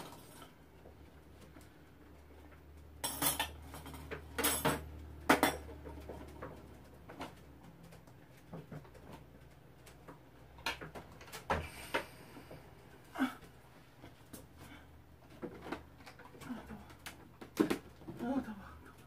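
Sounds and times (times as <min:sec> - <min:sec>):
objects clattering on a table: 0:03.0 - 0:07.4.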